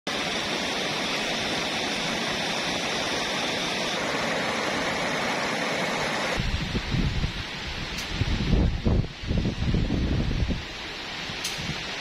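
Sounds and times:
river water rushing over rocks: 0:01.9 - 0:06.4.

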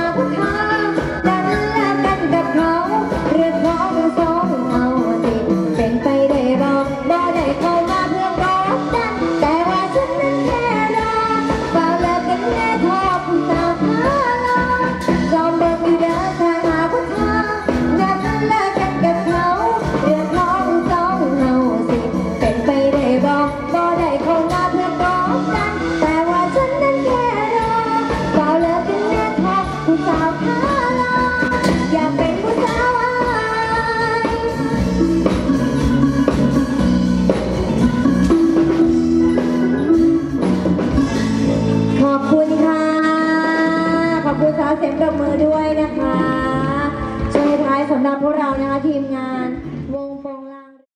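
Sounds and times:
woman singing into microphone: 0:00.0 - 0:39.8, 0:41.9 - 0:50.8
drums keeping steady beat: 0:00.0 - 0:44.4
folk band playing: 0:00.0 - 0:50.0
steady drum beat: 0:27.2 - 0:42.2
log xylophone: 0:33.8 - 0:42.7.

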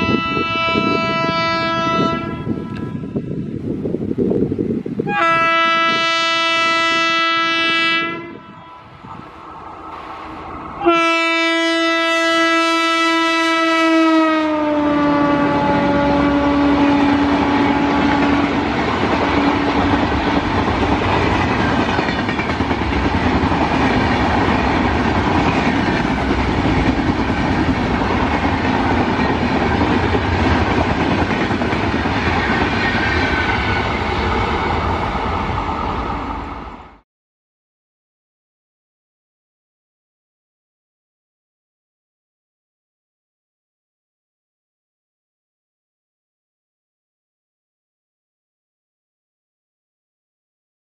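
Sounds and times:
locomotive horn blasts: 0:00.0 - 0:03.3, 0:05.0 - 0:09.0, 0:10.8 - 0:18.6
train coaches rushing past on rails: 0:07.2 - 0:37.0.

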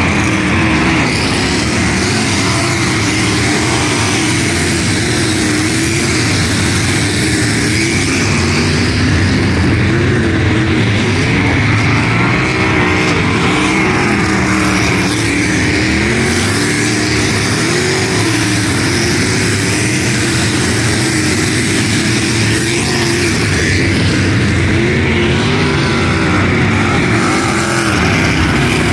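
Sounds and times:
race car engines revving: 0:00.0 - 0:28.9.

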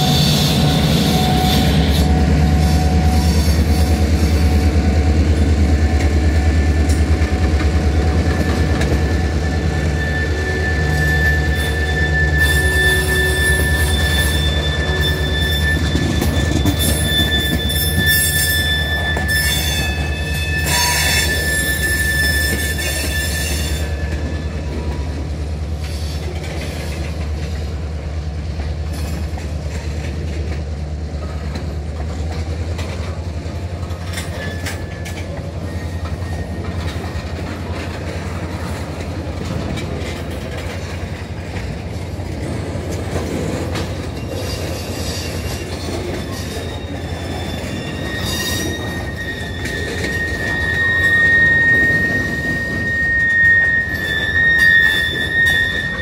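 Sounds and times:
high wheel squeal: 0:00.0 - 0:28.0, 0:32.8 - 0:56.0
train wheels rumbling on rail: 0:00.0 - 0:56.0
wheel screech: 0:08.0 - 0:25.1, 0:42.5 - 0:56.0.

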